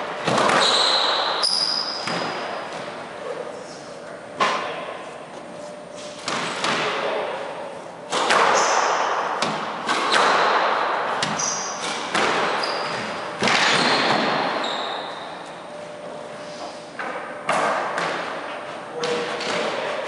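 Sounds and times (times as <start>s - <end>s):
squash ball hitting racquets and walls: 0.0s - 3.0s, 6.1s - 7.4s, 8.0s - 15.8s, 16.9s - 20.0s
sneakers squeaking on wooden floor: 0.5s - 2.9s, 11.2s - 15.6s.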